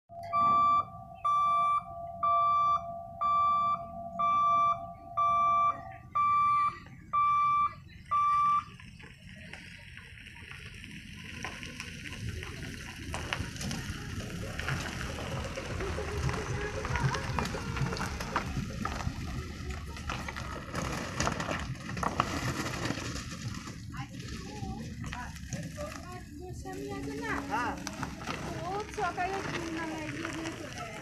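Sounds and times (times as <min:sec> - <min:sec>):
steady low tone: 0:00.1 - 0:30.8
road traffic noise: 0:00.1 - 0:31.0
warning buzzer beeping: 0:00.2 - 0:08.7.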